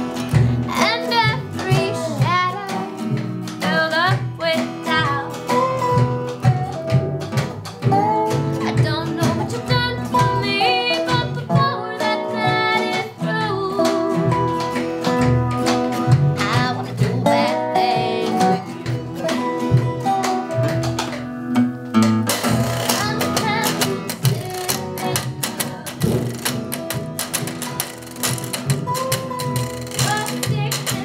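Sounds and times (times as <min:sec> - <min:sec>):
acoustic guitar strumming: 0:00.0 - 0:31.0
mandolin playing: 0:00.0 - 0:31.0
woman singing: 0:00.3 - 0:14.8, 0:16.2 - 0:20.8, 0:22.8 - 0:26.6, 0:29.9 - 0:31.0.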